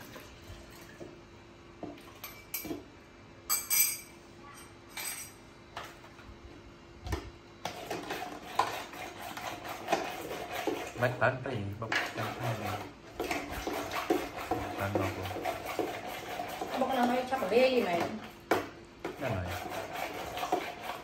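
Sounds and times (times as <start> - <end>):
spoon and containers clinking: 2.2 - 2.8, 3.5 - 5.4
spoon stirring in plastic tumbler: 7.6 - 11.2, 11.8 - 18.2.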